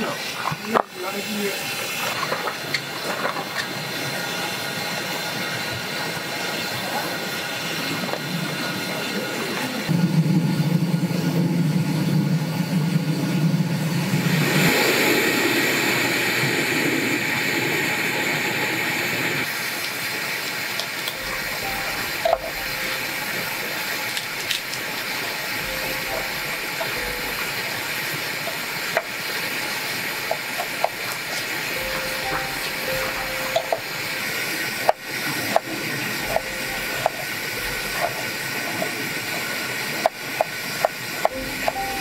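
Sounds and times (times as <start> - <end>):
steady hiss: 0.0 - 9.9, 13.3 - 42.0
low hum: 21.1 - 40.7.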